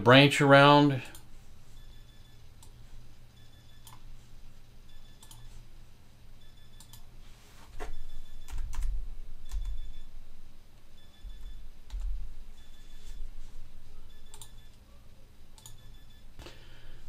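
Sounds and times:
mouse clicks and keystrokes: 3.7s - 4.1s, 5.1s - 5.5s, 6.7s - 7.1s, 9.5s - 10.0s, 14.2s - 14.8s, 15.6s - 16.0s.

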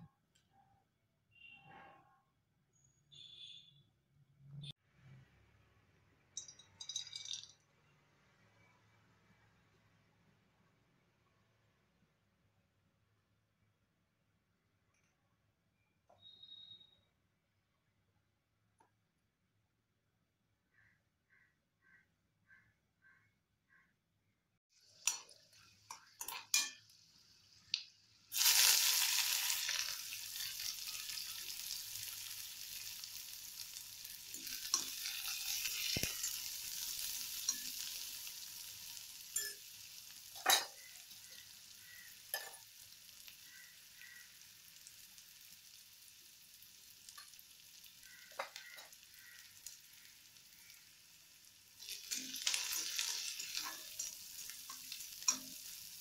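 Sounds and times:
food sizzling in hot oil: 24.7s - 56.0s
spoon stirring a pan: 24.8s - 27.8s, 28.4s - 44.3s, 47.1s - 51.0s, 51.8s - 56.0s.

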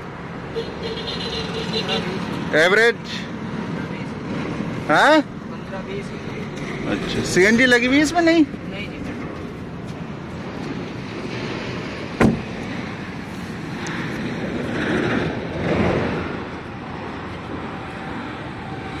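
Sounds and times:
outdoor street noise: 0.0s - 19.0s
car door shutting thud: 12.2s - 12.4s.

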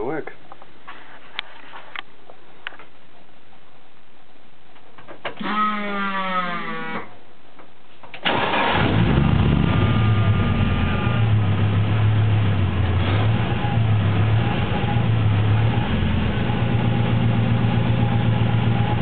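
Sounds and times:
car engine idling: 8.3s - 19.0s.

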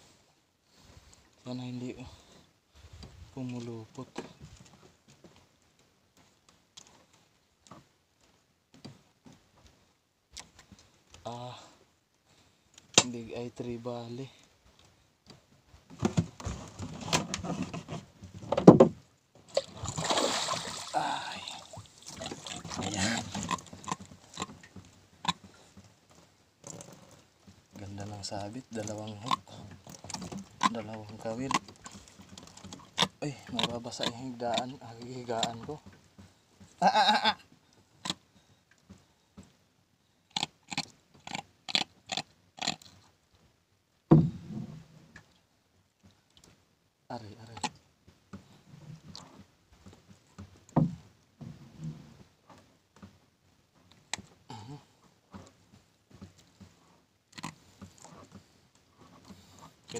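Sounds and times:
fish slapping: 19.5s - 21.0s
fish splashing in water: 19.5s - 24.0s
short grunt: 36.8s - 37.5s, 54.5s - 55.0s
heavy thud: 44.1s - 44.8s
loud thump: 44.1s - 44.8s.

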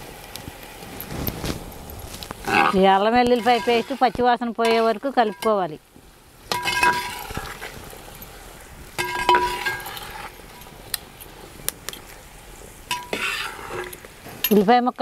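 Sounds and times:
faint frying sizzle: 0.0s - 15.0s
ladle scraping metal pot: 2.4s - 5.6s, 6.5s - 7.9s, 9.0s - 10.7s, 12.9s - 14.6s.

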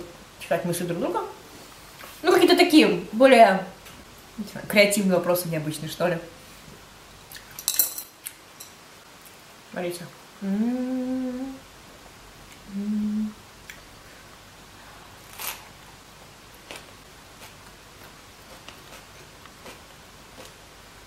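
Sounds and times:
woman humming: 10.4s - 11.7s, 12.6s - 13.5s.

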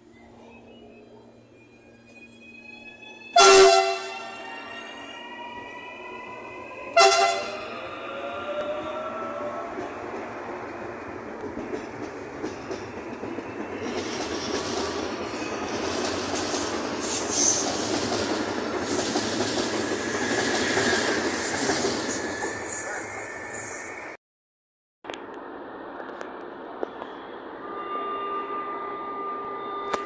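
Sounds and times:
train wheels rushing on rail: 2.0s - 24.2s
wheel squeal: 17.0s - 17.9s.

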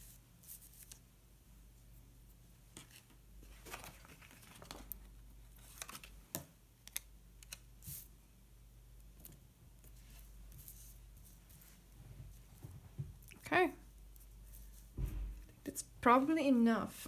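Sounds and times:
paper rustling: 2.8s - 6.3s
paper crinkling and tapping: 2.8s - 7.6s.

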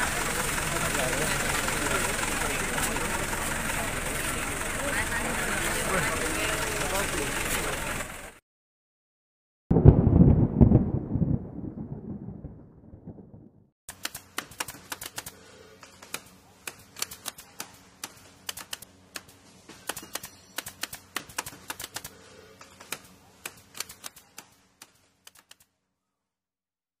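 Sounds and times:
rapid keyboard typing clicks: 13.9s - 15.3s, 16.0s - 19.3s, 19.9s - 22.1s.

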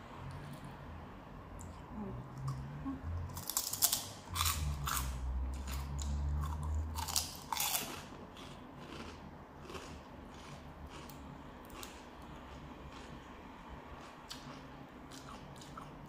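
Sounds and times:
crunching and chewing food: 3.3s - 16.0s.

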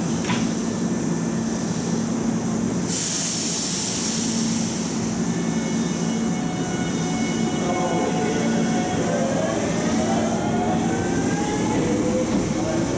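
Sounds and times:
compressed air hiss: 2.8s - 6.2s
electric train humming: 4.7s - 12.9s.

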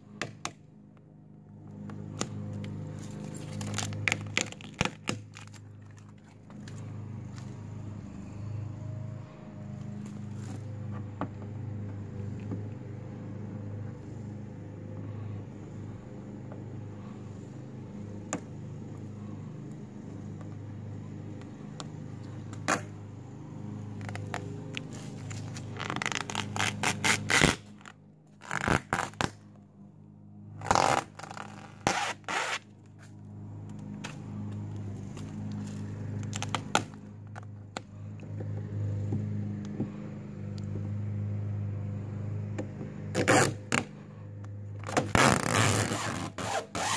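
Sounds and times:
steady low hum: 0.0s - 46.9s
vinyl film crackling and tearing: 3.2s - 5.7s, 25.2s - 27.8s, 28.4s - 29.4s.

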